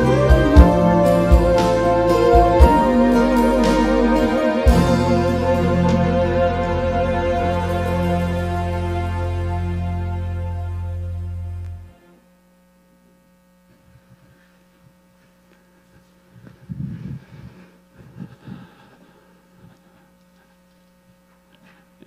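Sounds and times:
band's held chord: 0.0s - 12.2s
electrical mains hum: 0.0s - 22.0s.

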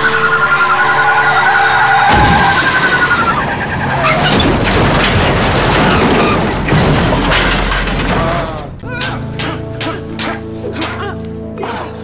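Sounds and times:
metal grinding along road: 0.0s - 11.4s
truck crash: 0.8s - 11.0s
heavy impacts: 2.0s - 11.0s.

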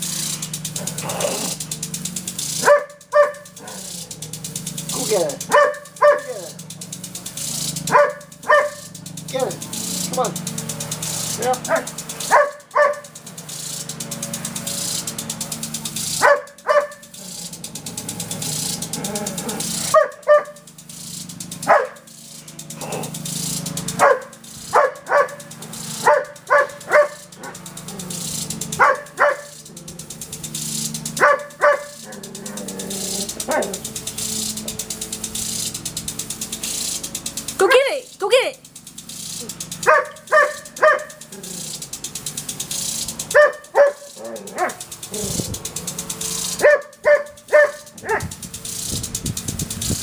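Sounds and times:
sprinkler ticking and hissing: 0.0s - 50.0s
dog barking: 2.6s - 4.0s, 5.4s - 6.5s, 7.8s - 9.0s, 11.7s - 13.1s, 16.2s - 17.1s, 19.8s - 20.7s, 21.6s - 22.1s, 23.9s - 27.6s, 28.8s - 29.6s, 31.2s - 32.6s, 33.4s - 33.8s, 39.8s - 41.3s, 43.3s - 45.3s, 46.6s - 48.4s.

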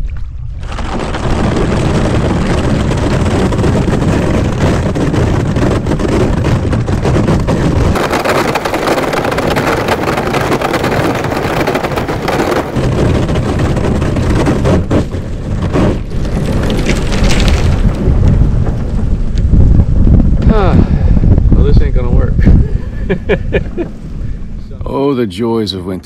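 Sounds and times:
low wind rumble on microphone: 0.0s - 26.0s
thin ice cracking and crunching: 0.5s - 18.3s.

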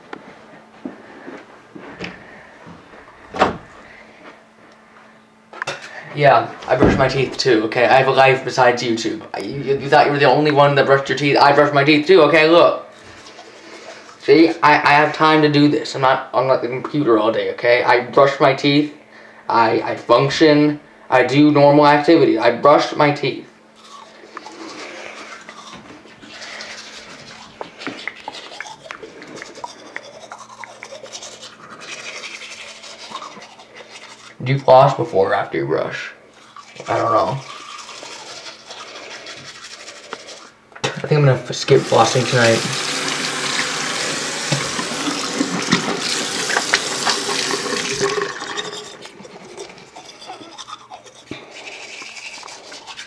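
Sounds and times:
faint steady hum: 0.0s - 53.0s
toothbrush scrubbing teeth: 12.9s - 14.6s, 23.8s - 35.0s, 36.3s - 40.6s, 41.7s - 53.0s
tap water running into sink: 41.8s - 48.8s.

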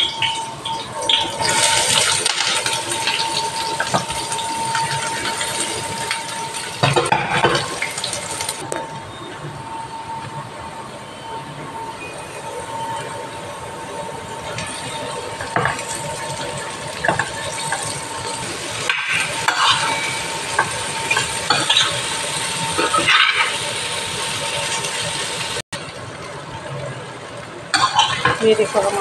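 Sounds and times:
okra sizzling in a pan: 0.0s - 8.6s, 14.4s - 25.6s.

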